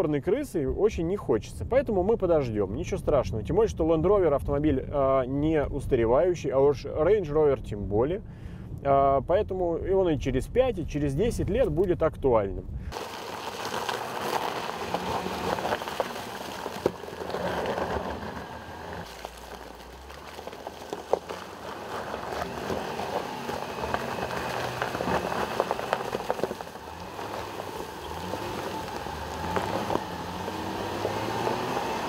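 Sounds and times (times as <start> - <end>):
car engine running low: 12.9 - 32.0
tyres squelching through mud: 12.9 - 32.0.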